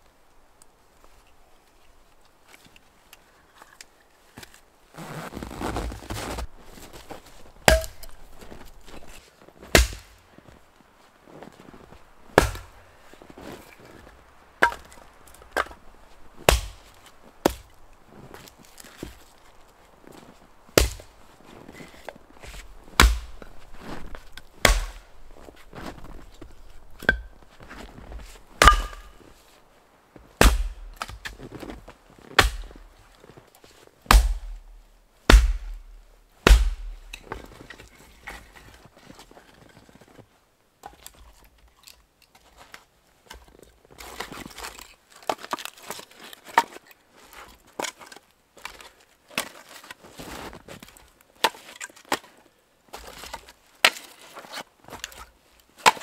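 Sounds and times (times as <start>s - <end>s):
hatchet chopping firewood: 7.6s - 8.3s, 9.7s - 10.2s, 12.4s - 12.8s, 14.6s - 15.8s, 16.4s - 17.8s, 20.8s - 21.1s, 23.0s - 23.5s, 24.3s - 25.0s, 26.8s - 27.4s, 28.6s - 29.2s, 30.4s - 31.3s, 32.4s - 32.8s, 34.1s - 34.7s, 35.3s - 37.3s.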